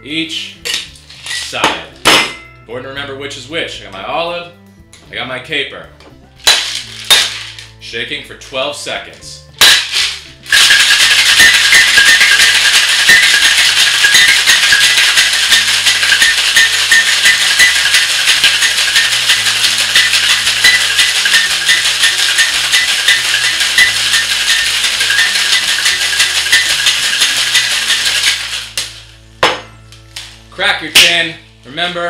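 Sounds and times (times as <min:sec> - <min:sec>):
background music: 0:00.0 - 0:32.0
ice rattling in metal shaker: 0:06.4 - 0:07.7, 0:09.6 - 0:29.0.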